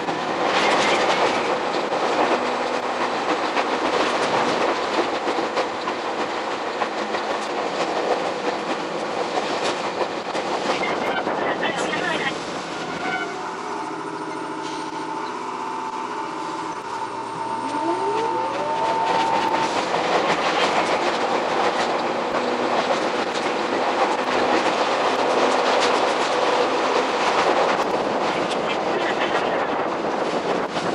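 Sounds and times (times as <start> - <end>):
train wheels clattering on rails: 0.0 - 30.9
electric motor whine: 15.8 - 19.8.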